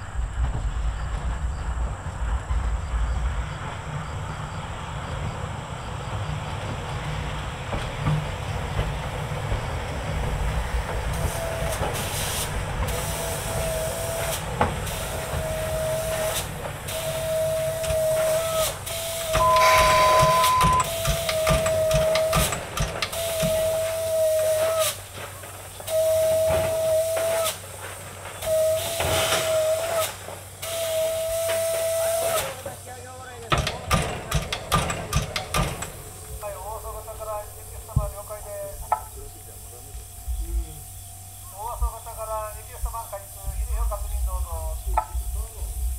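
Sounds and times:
steam locomotive low rumble: 0.0 - 45.9
whistling steam hisses: 0.0 - 45.9
brief high steady tone: 19.4 - 20.9.

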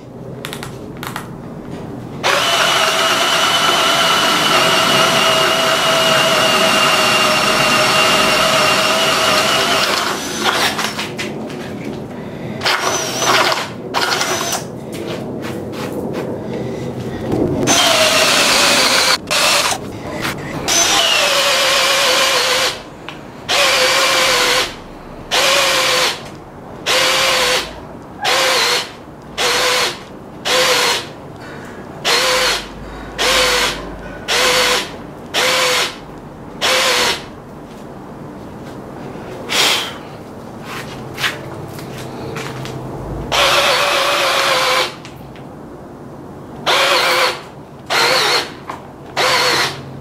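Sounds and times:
drill boring into wood: 2.2 - 11.0, 12.6 - 14.7, 17.7 - 19.8, 20.6 - 22.8, 23.5 - 26.2, 26.9 - 31.1, 32.0 - 36.0, 36.6 - 37.3, 43.3 - 45.0, 46.7 - 48.6, 49.2 - 49.8.

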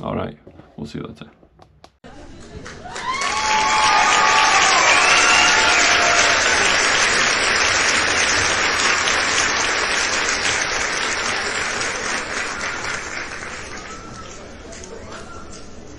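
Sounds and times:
crowd applause: 2.4 - 14.8.

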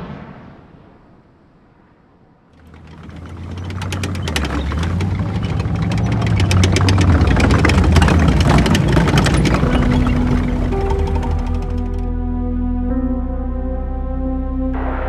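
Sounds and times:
fast clattering rattle: 2.6 - 12.1
heavy vehicle engine rumble: 2.6 - 12.6
sustained musical notes: 2.7 - 15.0.

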